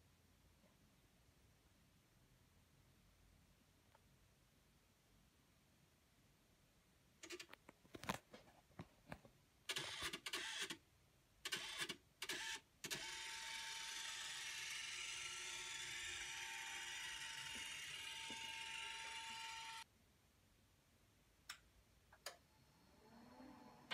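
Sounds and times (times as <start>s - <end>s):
scanner motor whine: 13.0s - 19.8s.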